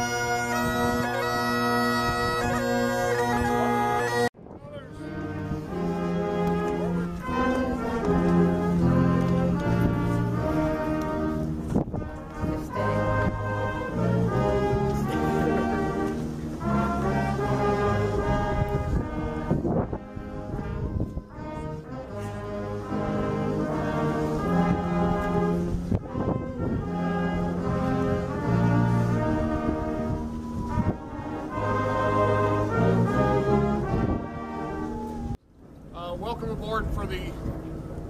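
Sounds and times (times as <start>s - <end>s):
slow brass music: 0.0s - 35.4s.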